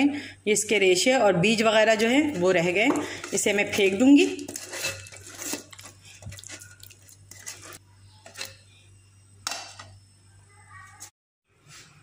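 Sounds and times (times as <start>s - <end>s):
metal strainer and bowl clinking: 4.4s - 8.6s.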